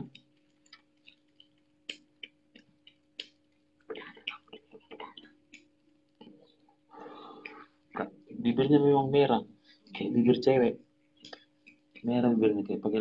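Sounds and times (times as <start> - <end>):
otter chewing fish: 0.0 - 8.4.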